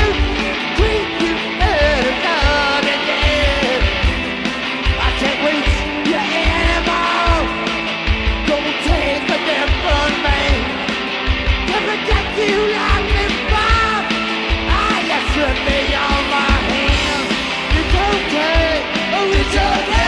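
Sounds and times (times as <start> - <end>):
driving drum beat: 0.0 - 20.0
electric guitars: 0.0 - 20.0
shouted sung vocals: 11.7 - 20.0.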